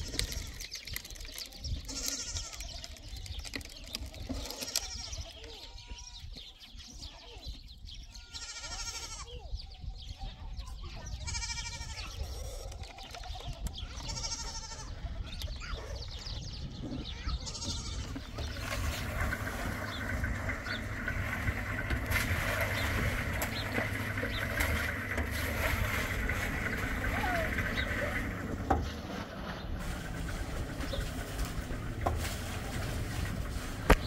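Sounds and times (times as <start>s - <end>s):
livestock bleating: 8.1s - 9.4s, 11.2s - 12.5s, 14.0s - 15.0s, 17.1s - 18.3s
steady low rumble: 13.7s - 34.0s.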